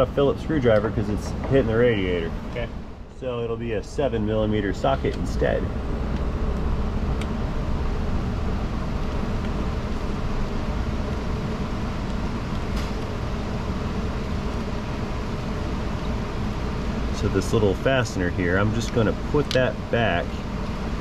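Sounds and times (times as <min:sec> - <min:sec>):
ventilation fan hum: 0:00.0 - 0:21.0.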